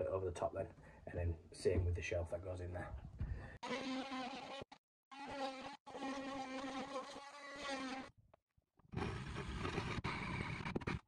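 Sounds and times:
drill with hole saw grinding: 9.0s - 11.0s.

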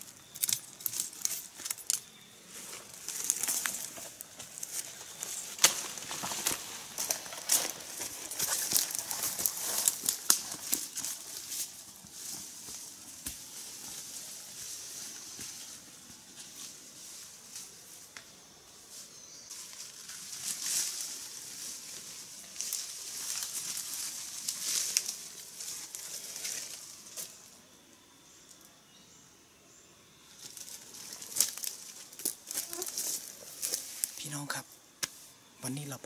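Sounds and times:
leaves and stems rustling: 0.0s - 27.6s, 30.3s - 35.9s
twigs snapping: 0.2s - 2.1s, 2.8s - 11.2s, 30.4s - 34.2s
footsteps crunching leaf litter: 0.4s - 15.0s, 19.5s - 27.4s, 30.4s - 34.4s.

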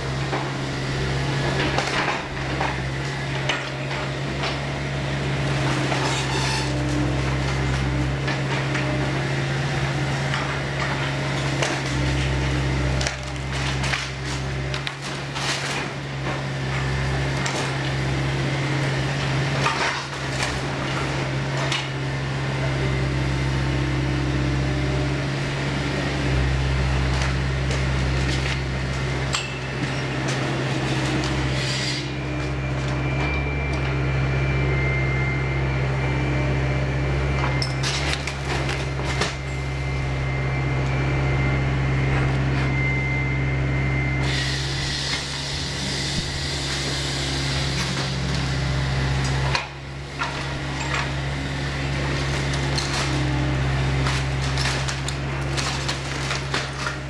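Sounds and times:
excavator engine running: 0.0s - 57.0s
timber cracking and splintering: 52.2s - 57.0s.

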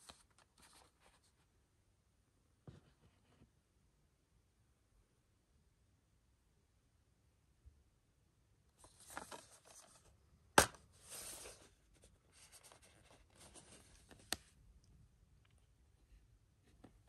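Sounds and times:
plastic case rustling in hands: 8.8s - 14.6s.

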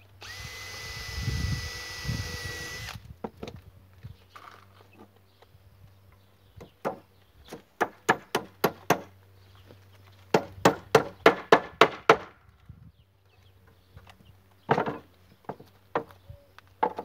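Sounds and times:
hammering on wood: 6.6s - 9.1s, 10.3s - 12.4s.

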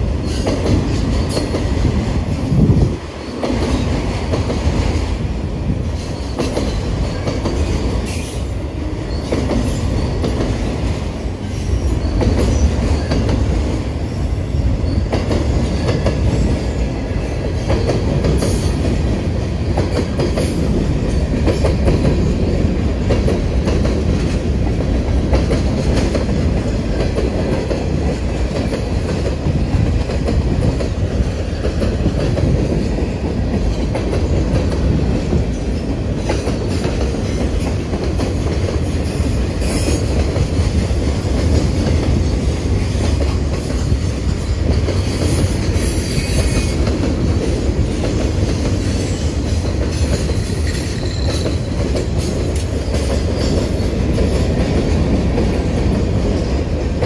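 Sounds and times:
train wheels rolling and clacking: 0.0s - 57.0s
train wheel squeal: 5.8s - 22.4s, 35.5s - 40.5s, 41.1s - 47.4s, 48.2s - 56.5s.

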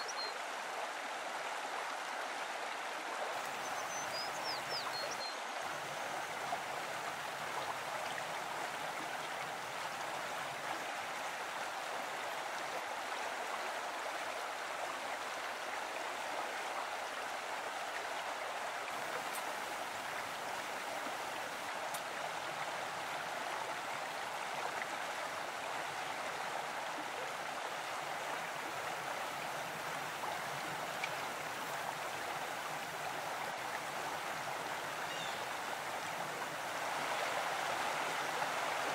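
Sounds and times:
stream water flowing: 0.0s - 38.9s.

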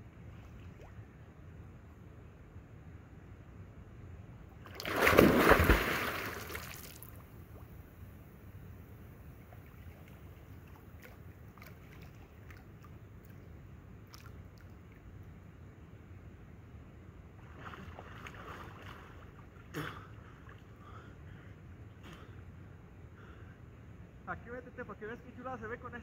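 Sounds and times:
faint water sounds: 0.0s - 3.7s, 4.3s - 26.0s
loud splash into water: 4.8s - 7.1s.

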